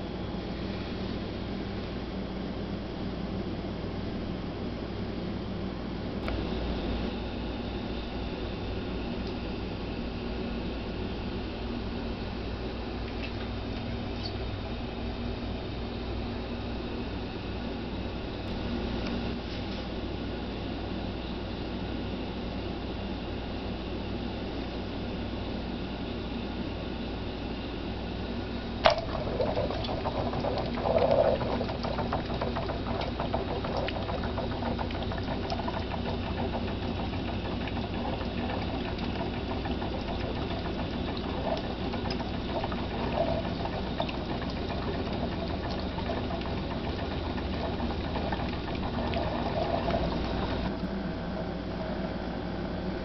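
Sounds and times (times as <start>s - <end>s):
coffee maker bubbling and gurgling: 6.2s - 15.3s, 28.7s - 53.0s.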